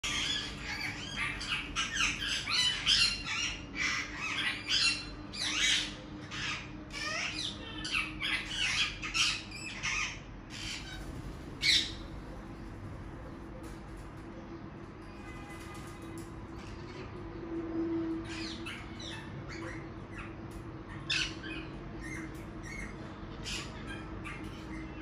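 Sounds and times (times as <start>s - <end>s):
parakeets screeching: 0.0s - 14.0s, 15.0s - 25.0s.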